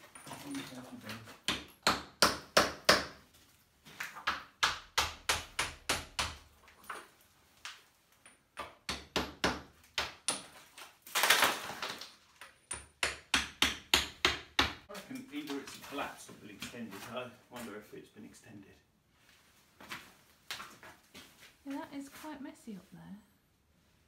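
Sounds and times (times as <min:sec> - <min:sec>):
hammer chipping cement off stone: 0:01.3 - 0:03.2, 0:04.2 - 0:06.4, 0:08.6 - 0:12.0, 0:12.7 - 0:14.8.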